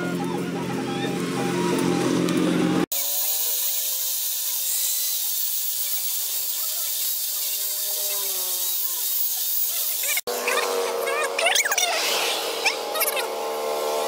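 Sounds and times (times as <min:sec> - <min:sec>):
grinder motor whine: 0:00.0 - 0:14.0
sanding disc hissing on wood: 0:02.9 - 0:14.0.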